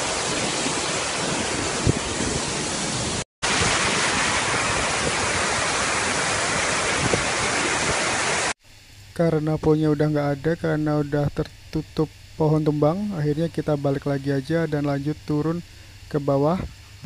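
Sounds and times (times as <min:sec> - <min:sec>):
waterfall rushing: 0:00.0 - 0:08.6.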